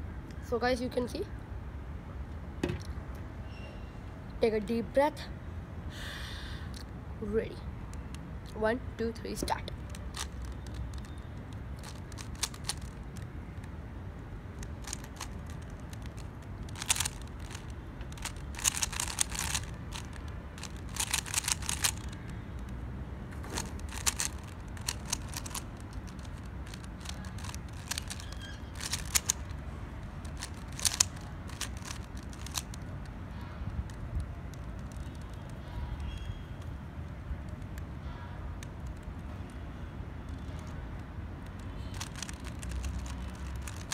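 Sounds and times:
steady low rumble: 5.4 - 43.9
plastic puzzle cube clicking: 9.6 - 13.7, 14.5 - 22.8, 23.6 - 33.1, 33.7 - 36.7, 38.6 - 39.6, 41.5 - 43.9.

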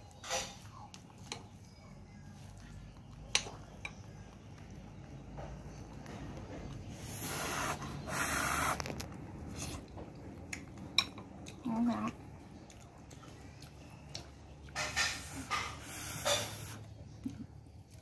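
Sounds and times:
short hissing bursts: 7.0 - 8.8.

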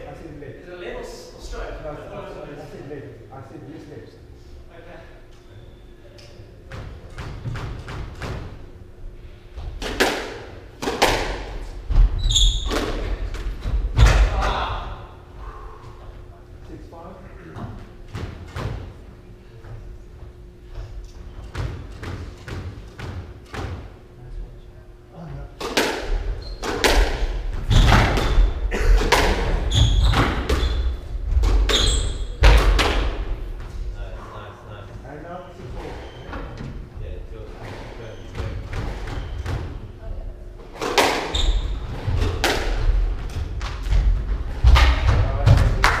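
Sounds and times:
shoe squeak: 5.5 - 6.0, 12.1 - 13.1, 26.4 - 26.8, 29.7 - 31.0, 31.6 - 32.4, 35.8 - 36.4, 37.7 - 40.0, 41.2 - 41.9
racket hitting squash ball: 9.6 - 14.4, 25.6 - 33.8, 37.7 - 39.9, 40.7 - 46.0.

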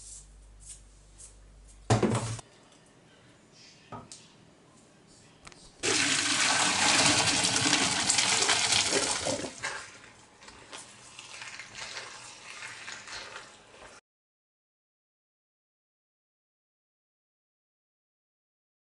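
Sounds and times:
water gushing into colander: 5.8 - 14.0.

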